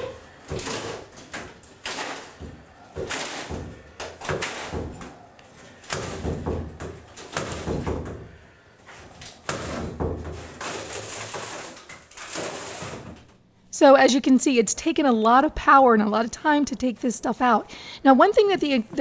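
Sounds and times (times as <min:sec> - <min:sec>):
fiberglass panel cracking and scraping: 0:09.2 - 0:13.4.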